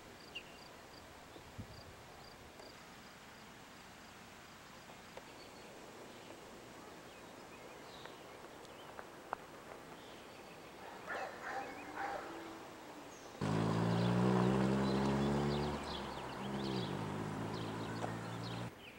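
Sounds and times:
dog barking: 0:10.8 - 0:12.5.

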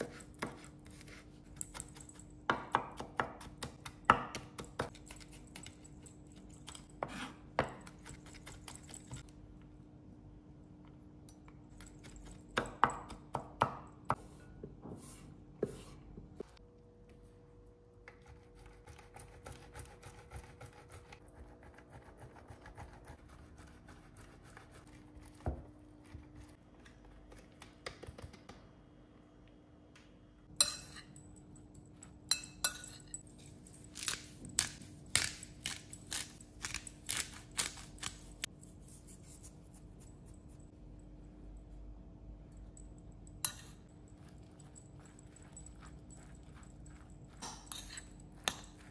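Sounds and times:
spoon clinking glass bowl: 0:30.5 - 0:34.1, 0:43.3 - 0:48.9.

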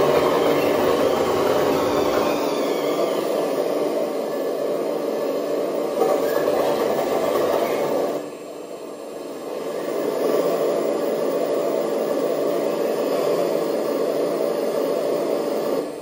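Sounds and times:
model excavator whirring: 0:00.0 - 0:08.4.

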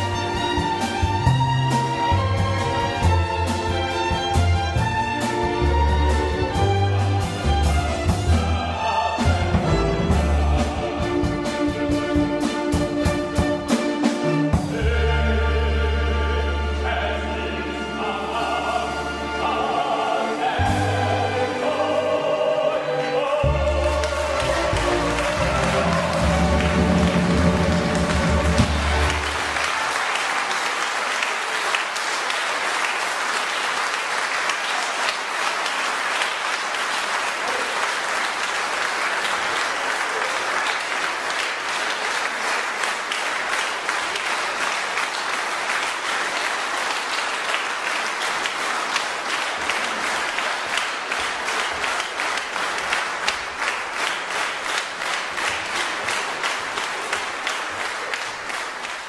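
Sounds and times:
audience applauding: 0:23.5 - 0:59.0.

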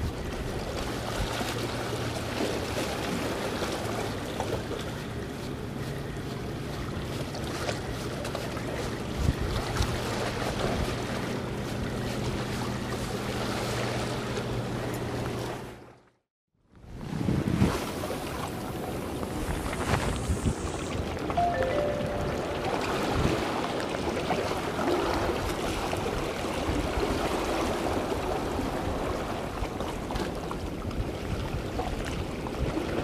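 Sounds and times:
boat engine humming: 0:00.0 - 0:16.1, 0:18.0 - 0:31.2
wind buffeting microphone: 0:08.9 - 0:12.1, 0:16.9 - 0:21.4.

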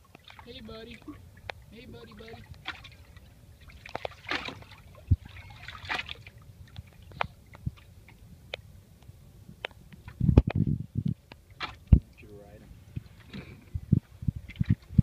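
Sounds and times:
water sloshing and dripping: 0:00.0 - 0:08.7, 0:11.2 - 0:12.3, 0:14.3 - 0:15.0
sharp drip-like clicks: 0:01.0 - 0:01.6, 0:06.6 - 0:11.4.

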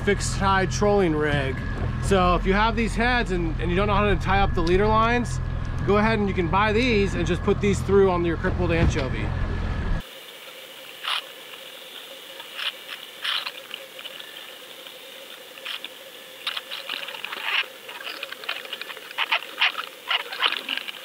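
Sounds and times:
faint hum: 0:00.0 - 0:21.0
hiss: 0:10.0 - 0:21.0
underwater clicks and crackles: 0:14.8 - 0:21.0.

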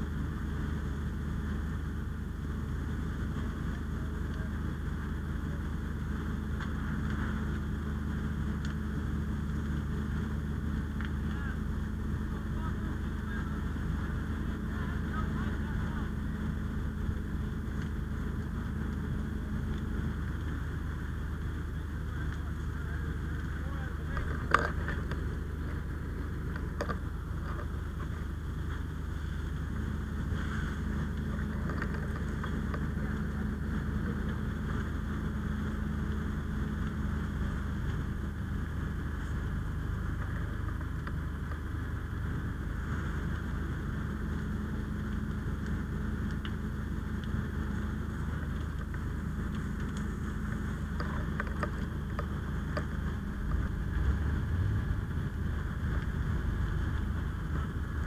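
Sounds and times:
fire engine droning: 0:00.0 - 0:58.0
faint clicks: 0:45.1 - 0:46.6, 0:47.2 - 0:54.2
wind on microphone: 0:47.9 - 0:58.0.

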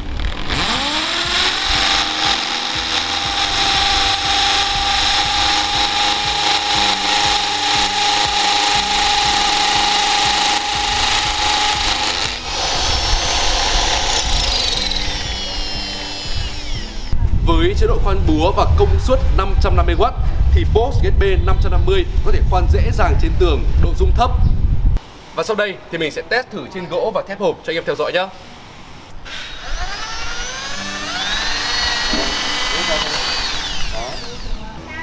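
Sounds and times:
hammer drill boring into masonry: 0:00.0 - 0:17.2, 0:29.3 - 0:34.6.

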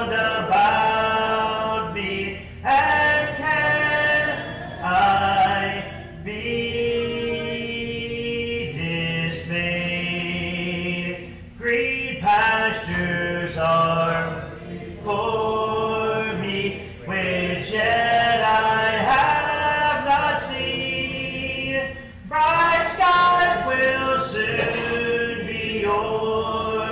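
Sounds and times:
congregation singing a hymn: 0:00.0 - 0:26.9
man's voice leading singing: 0:00.0 - 0:26.9.

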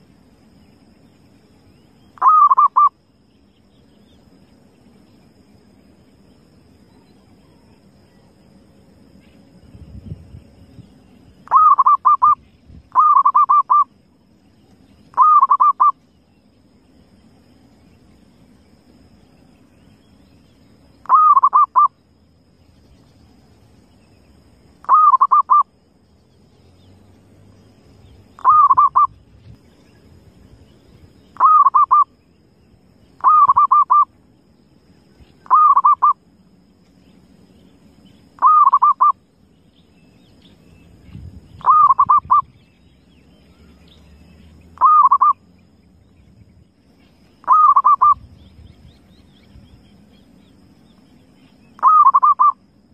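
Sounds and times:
faint low background noise: 0:00.0 - 0:52.9
dove cooing: 0:02.2 - 0:02.9, 0:11.5 - 0:12.4, 0:13.0 - 0:13.8, 0:15.2 - 0:15.9, 0:21.0 - 0:21.9, 0:24.8 - 0:25.6, 0:28.4 - 0:29.1, 0:31.4 - 0:32.0, 0:33.2 - 0:34.1, 0:35.4 - 0:36.2, 0:38.4 - 0:39.1, 0:41.6 - 0:42.4, 0:44.8 - 0:45.4, 0:47.4 - 0:48.2, 0:51.8 - 0:52.6.

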